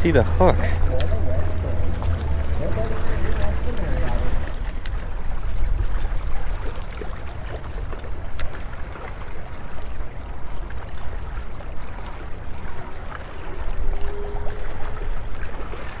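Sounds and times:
low uneven rumble: 0:00.0 - 0:16.0
waves lapping against rocks: 0:00.0 - 0:16.0.

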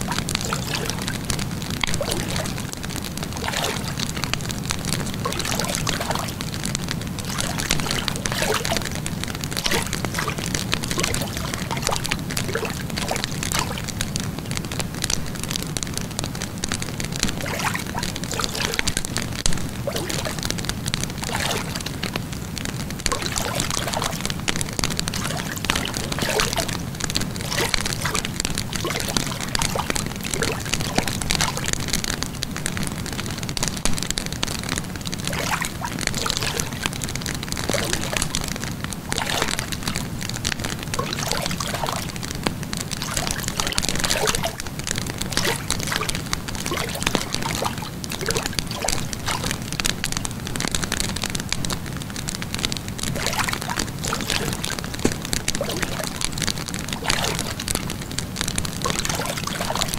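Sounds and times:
wood fire crackling: 0:00.0 - 0:59.2.

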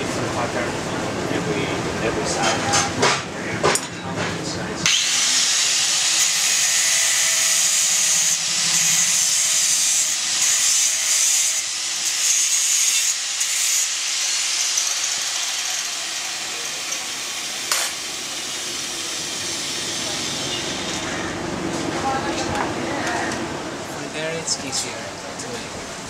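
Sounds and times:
angle grinder grinding steel: 0:04.8 - 0:21.1.

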